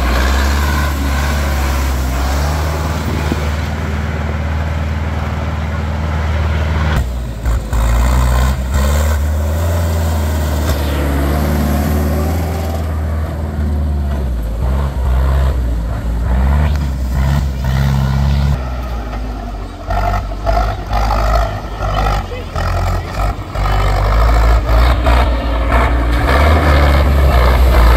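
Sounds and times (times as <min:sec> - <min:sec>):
tractor diesel engines running hard: 0:00.0 - 0:27.9.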